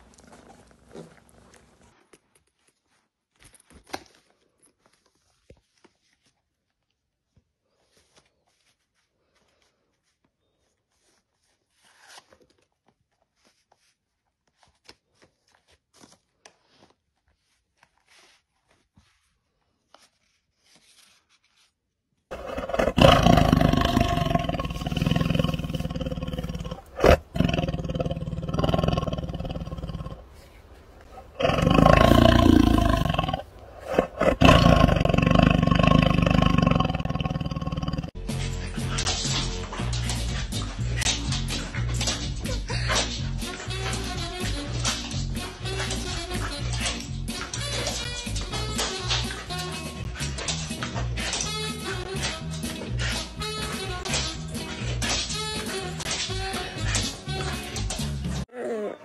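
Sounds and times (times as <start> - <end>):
rustling and crinkling: 0.0 - 58.5
tiger growling: 22.3 - 59.0.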